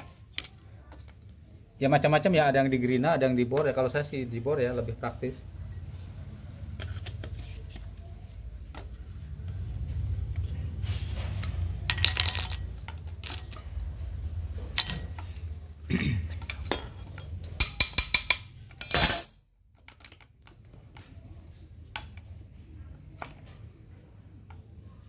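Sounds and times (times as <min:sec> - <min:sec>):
metal parts clinking and knocking: 0:11.7 - 0:15.5, 0:16.4 - 0:20.2.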